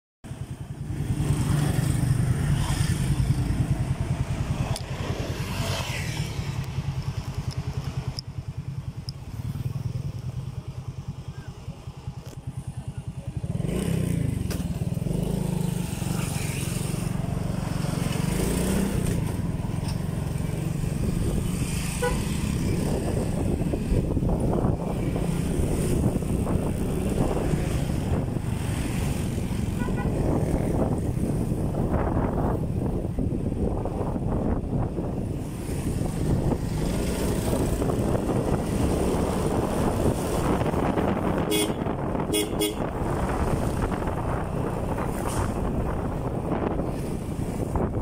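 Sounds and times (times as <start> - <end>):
motorcycle engine running: 0.3 - 48.0.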